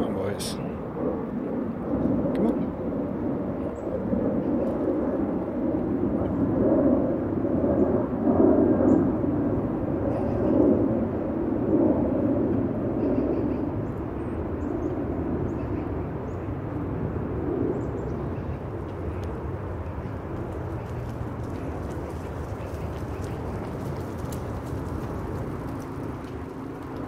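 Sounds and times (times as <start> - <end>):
wind buffeting microphone: 0.0 - 27.0
small birds chirping: 17.7 - 27.0.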